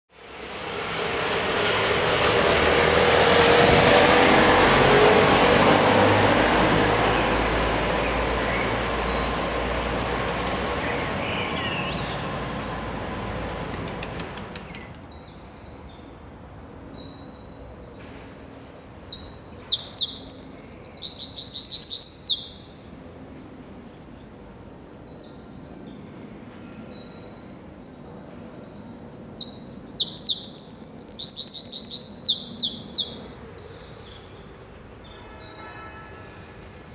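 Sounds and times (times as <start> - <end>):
street traffic noise: 0.1 - 36.9
songbird trilling: 18.4 - 22.8, 28.9 - 35.2.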